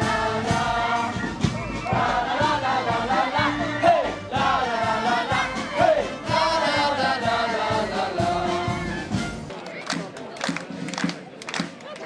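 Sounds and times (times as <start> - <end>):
group of people singing: 0.0 - 9.0
band playing steady beat: 0.0 - 12.0.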